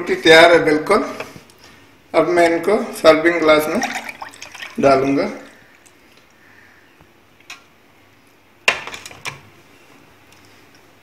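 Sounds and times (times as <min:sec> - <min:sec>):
drink pouring into glass: 0:03.6 - 0:04.8.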